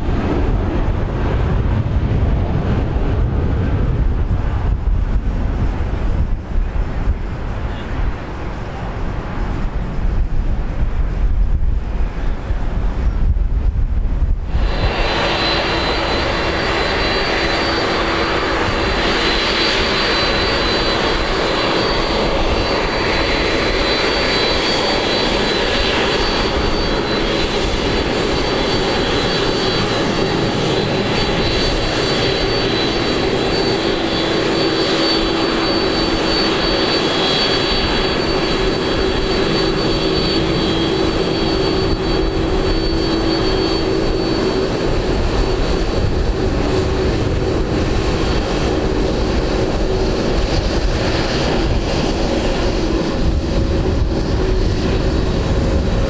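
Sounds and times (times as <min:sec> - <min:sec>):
jet engines whining: 0:00.0 - 0:11.2, 0:14.3 - 0:56.0.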